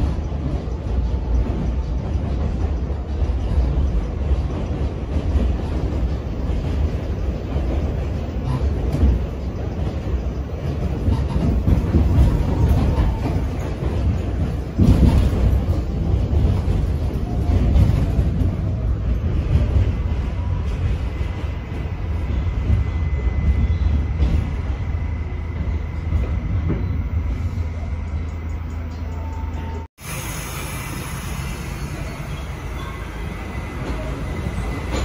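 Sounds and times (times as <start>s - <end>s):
subway train rumble and rattle: 0.0s - 35.0s.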